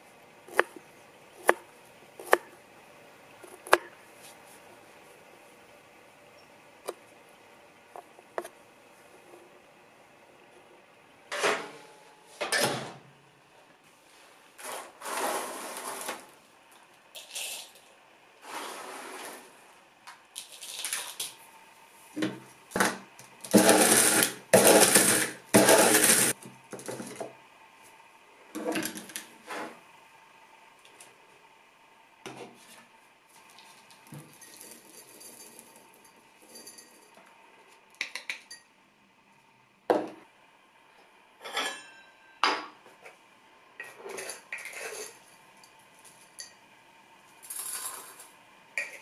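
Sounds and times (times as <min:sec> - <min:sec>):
knife chopping on wooden board: 0:00.5 - 0:00.8, 0:01.4 - 0:01.6, 0:02.2 - 0:02.5, 0:03.5 - 0:03.9
electric coffee grinder grinding: 0:23.4 - 0:26.4, 0:47.4 - 0:48.3.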